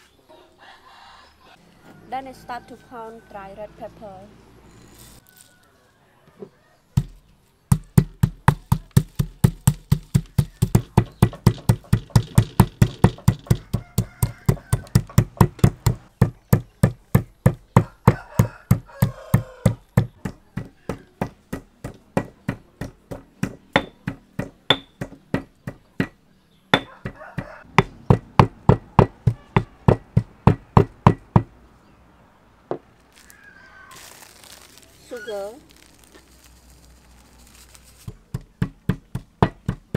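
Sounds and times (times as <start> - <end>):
stone pestle pounding in mortar: 7.0 - 31.5, 38.0 - 39.9.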